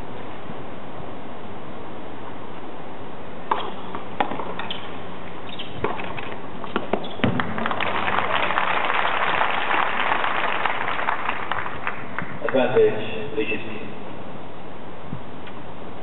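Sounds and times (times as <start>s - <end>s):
background hiss: 0.0s - 16.0s
tennis ball struck by rackets: 3.5s - 7.8s
crowd applause: 7.4s - 12.7s.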